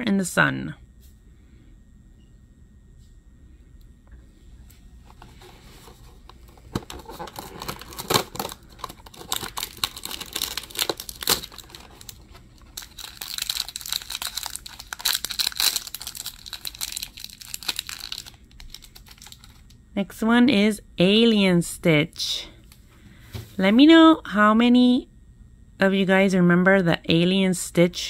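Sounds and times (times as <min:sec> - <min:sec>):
foil wrapper crinkling and tearing: 0:06.6 - 0:19.8.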